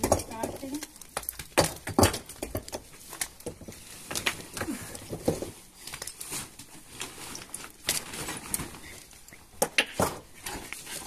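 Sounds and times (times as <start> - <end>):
cloth rustling: 5.6 - 9.2.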